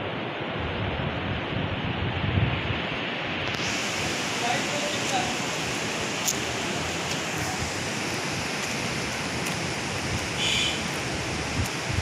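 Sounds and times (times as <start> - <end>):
steady rushing noise: 0.0 - 12.0.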